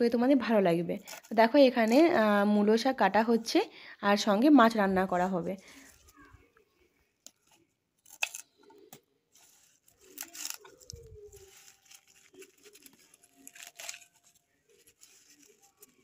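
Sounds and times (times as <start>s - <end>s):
leaf rustle: 9.3s - 16.0s.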